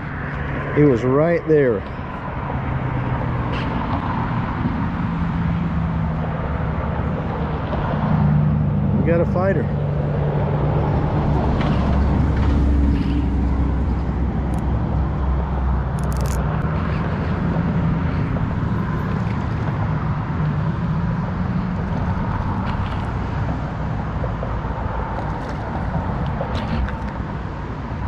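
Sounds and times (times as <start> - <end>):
constant rushing noise: 0.0 - 28.0.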